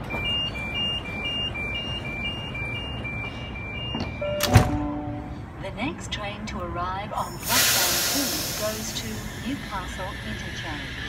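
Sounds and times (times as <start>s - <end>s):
two-tone door warning beep: 0.0s - 5.2s.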